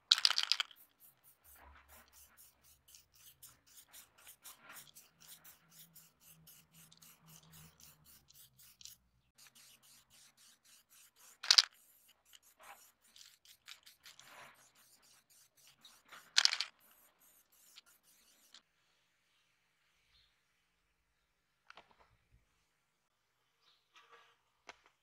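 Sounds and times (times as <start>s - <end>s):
spray can hissing: 0.2s - 18.5s.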